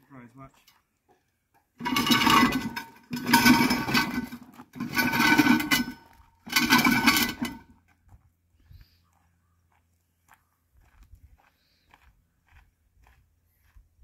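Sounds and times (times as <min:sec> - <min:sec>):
gravel crunching: 0:00.0 - 0:14.0
metal rattling: 0:01.8 - 0:07.7.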